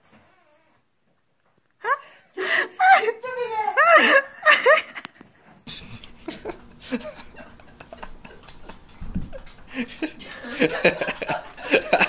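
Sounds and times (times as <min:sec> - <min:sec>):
dog paws tapping on wooden floor: 0:04.8 - 0:12.0.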